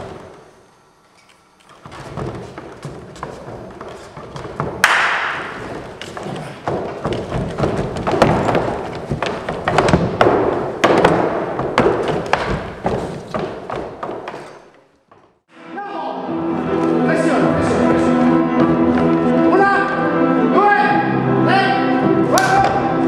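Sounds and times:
feet thumping on wooden stage: 1.7 - 15.4.

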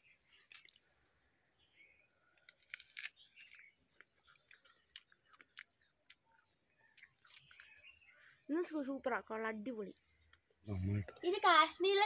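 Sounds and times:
person chewing apple crunches: 0.2 - 1.0, 2.2 - 8.0.

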